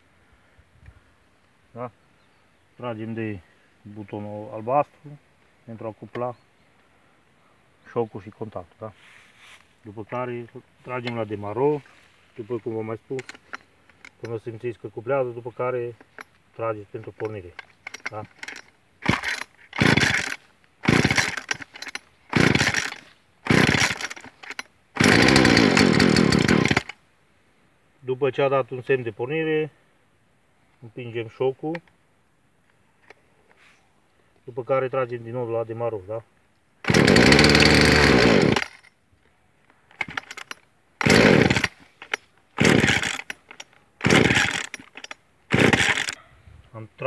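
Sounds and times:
chainsaw starter cord cranking: 0:12.9 - 0:14.4, 0:15.9 - 0:16.4, 0:17.0 - 0:27.0, 0:36.8 - 0:38.9, 0:39.9 - 0:46.2
chainsaw engine firing briefly: 0:19.0 - 0:21.7, 0:22.3 - 0:24.3, 0:42.6 - 0:43.3, 0:44.0 - 0:44.7, 0:45.5 - 0:46.2.

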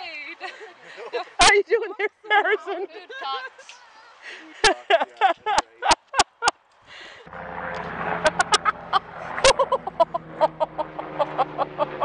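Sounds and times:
steady low hum: 0:07.3 - 0:12.0.

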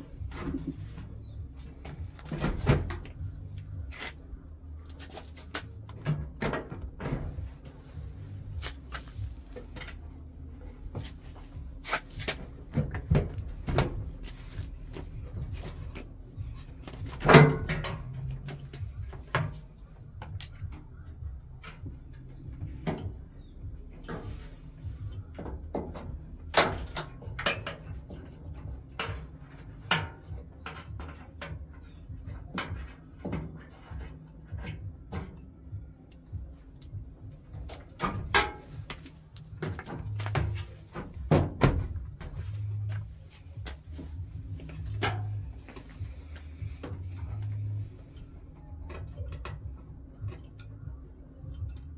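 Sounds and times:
knocks and clunks on sheet metal: 0:01.8 - 0:03.4, 0:05.8 - 0:07.6, 0:16.9 - 0:20.7, 0:25.3 - 0:35.4, 0:37.8 - 0:42.5.

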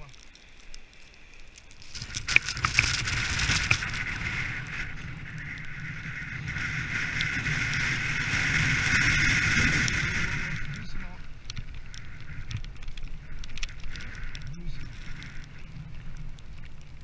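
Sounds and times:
snow hissing under sled: 0:01.3 - 0:12.5
wind buffeting microphone: 0:01.8 - 0:17.0.

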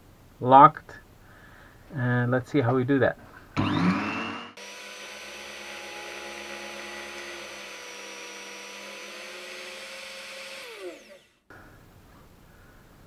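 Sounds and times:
mini lathe whining: 0:03.6 - 0:11.5.

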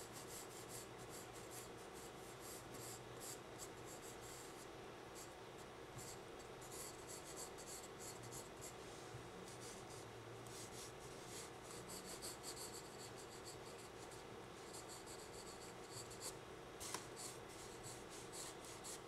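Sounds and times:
steady low hum: 0:00.0 - 0:19.0
pencil scratching on paper: 0:06.0 - 0:08.8, 0:09.5 - 0:19.0.

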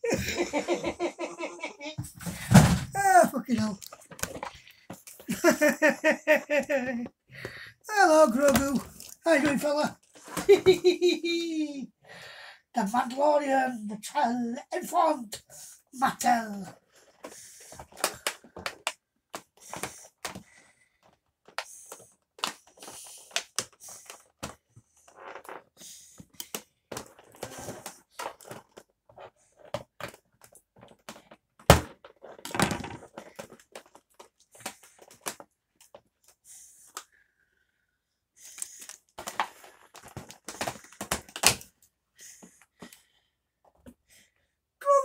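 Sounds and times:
cardboard packaging rustling: 0:38.6 - 0:41.7.

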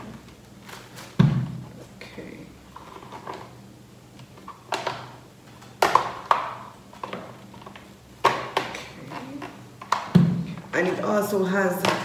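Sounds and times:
plastic knocks and rattles: 0:04.4 - 0:11.1.

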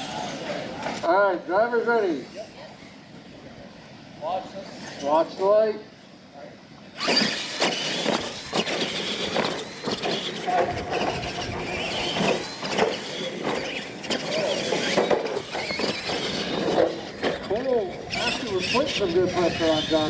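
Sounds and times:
toy truck motors whining: 0:06.9 - 0:20.0
tyres scrabbling on dirt: 0:07.0 - 0:20.0
trucks knocking on landing: 0:07.7 - 0:17.6.

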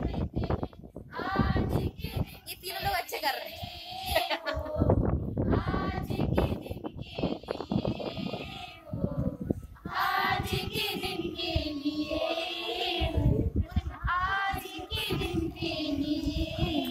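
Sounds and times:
children singing: 0:05.5 - 0:16.9.

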